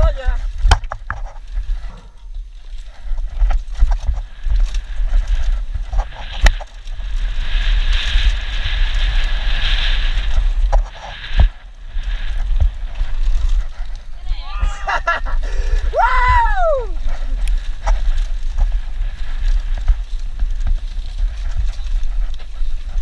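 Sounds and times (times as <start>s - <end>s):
bike knocks and rattles: 0.0s - 14.0s
wind rumbling on microphone: 0.0s - 23.0s.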